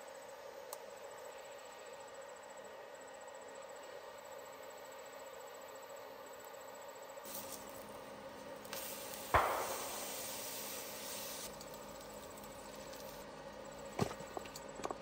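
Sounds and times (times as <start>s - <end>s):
steady hum: 0.0s - 15.0s
hiss: 7.2s - 7.9s, 8.6s - 13.2s
sharp ringing knock: 9.4s - 10.1s.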